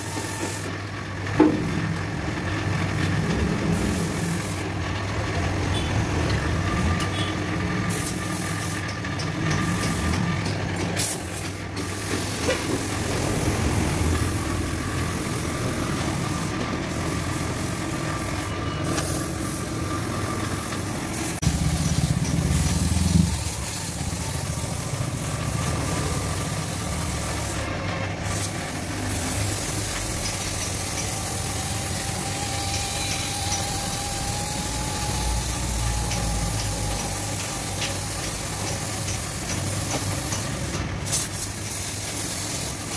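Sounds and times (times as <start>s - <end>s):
air compressor running: 0.0s - 42.9s
spray gun hissing: 3.7s - 4.6s, 11.0s - 42.9s.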